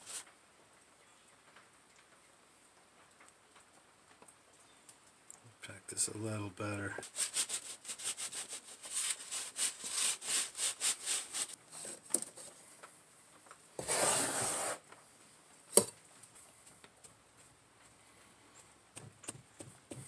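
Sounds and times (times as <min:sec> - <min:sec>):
sand rasping through wire mesh: 0:00.0 - 0:00.2, 0:07.0 - 0:11.6, 0:13.8 - 0:14.8.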